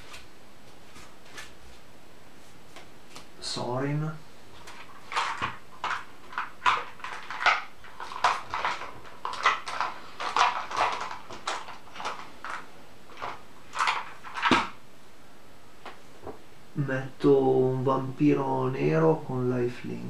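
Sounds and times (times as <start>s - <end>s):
cards being shuffled: 0.0s - 1.8s, 2.4s - 3.3s, 4.5s - 14.8s.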